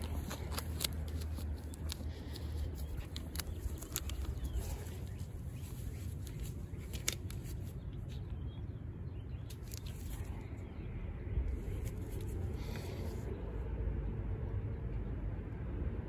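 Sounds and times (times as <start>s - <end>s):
sharp clicks: 0.0s - 8.2s
rustling: 0.0s - 8.3s, 9.5s - 10.6s, 11.5s - 13.3s
steady low rumble: 0.0s - 16.0s.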